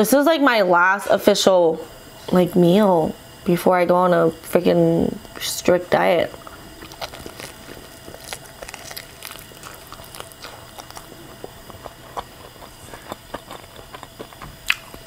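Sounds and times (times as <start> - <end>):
chewing crispy fried chicken: 6.3 - 15.0.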